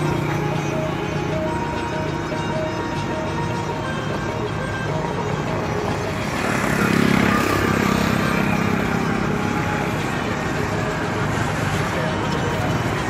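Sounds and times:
traffic noise: 0.0s - 13.0s
vehicle engine passing: 5.4s - 13.0s.

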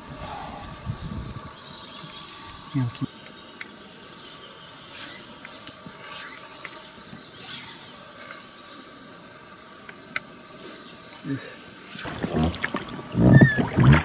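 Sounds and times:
fly line hissing swishes: 4.8s - 14.0s.

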